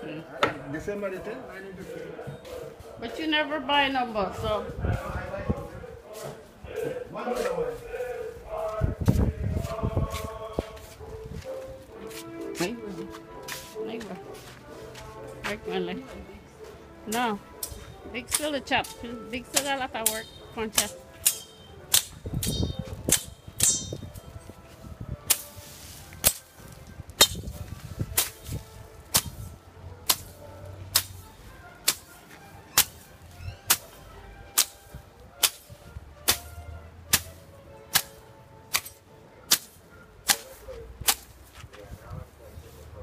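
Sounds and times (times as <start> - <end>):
machete chopping grass: 19.6 - 24.0, 25.2 - 25.6, 26.2 - 26.6, 27.2 - 31.2, 31.8 - 33.1, 33.7 - 41.4.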